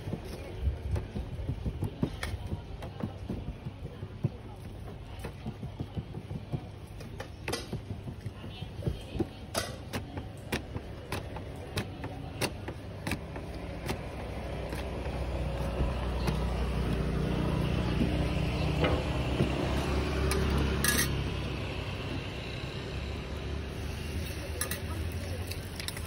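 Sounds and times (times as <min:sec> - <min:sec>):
passing vehicle engine rumble: 0:13.2 - 0:26.0.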